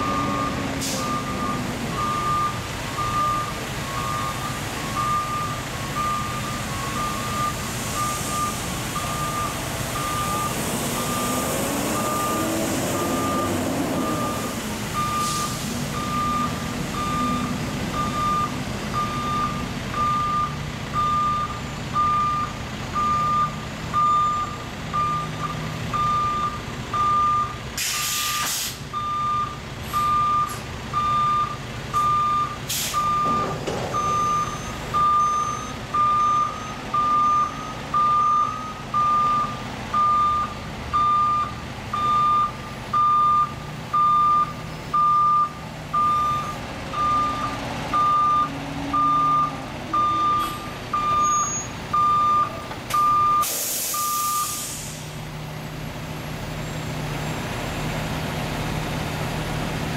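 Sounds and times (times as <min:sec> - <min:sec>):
truck engine running: 0:00.0 - 0:27.8
backup alarm beeping: 0:00.0 - 0:54.6
short air hisses: 0:27.8 - 0:28.8, 0:32.7 - 0:33.0, 0:53.4 - 0:55.1.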